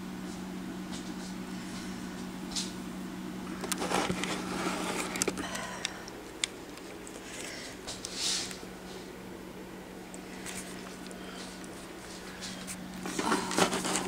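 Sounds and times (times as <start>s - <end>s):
low hum: 0.0s - 14.0s
camcorder handling noise: 3.6s - 5.4s.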